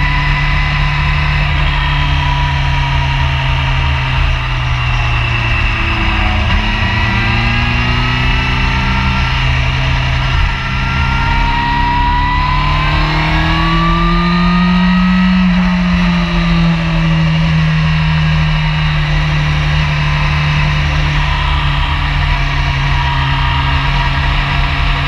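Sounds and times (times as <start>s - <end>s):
motorcycle engine accelerating: 0.0s - 25.0s
wind rush: 1.8s - 17.3s.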